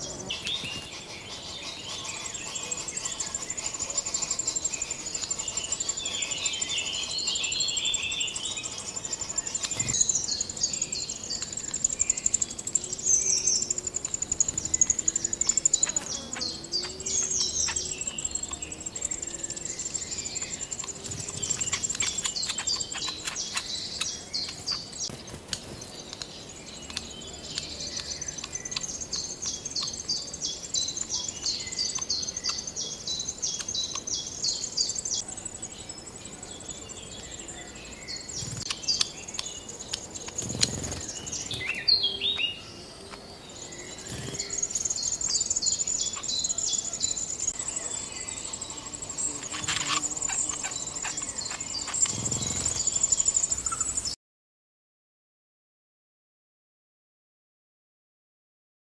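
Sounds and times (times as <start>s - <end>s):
high insect buzz: 0.0s - 42.6s, 43.5s - 54.2s
high-pitched bird chirps: 48.3s - 54.2s.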